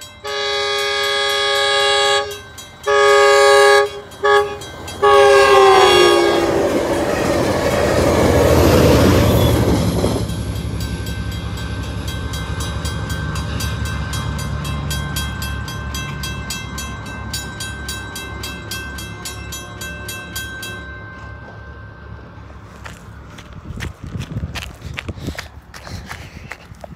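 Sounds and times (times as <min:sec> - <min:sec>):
train rushing past: 0:00.0 - 0:25.7
train horn blast: 0:00.2 - 0:06.9.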